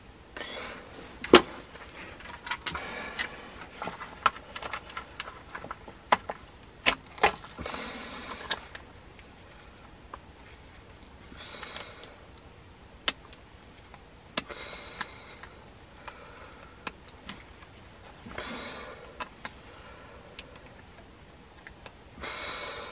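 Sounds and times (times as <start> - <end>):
gloves rustling and scraping: 0.4 - 12.4.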